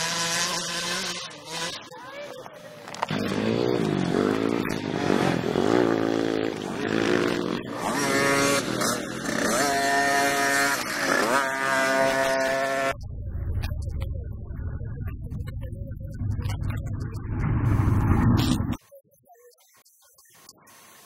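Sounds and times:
dirt bike engine revving: 0.0s - 2.1s, 3.0s - 13.0s.

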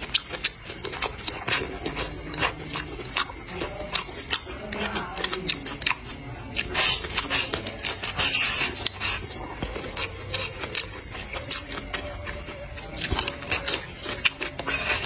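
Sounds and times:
crisp chewing crunches: 0.0s - 15.0s.

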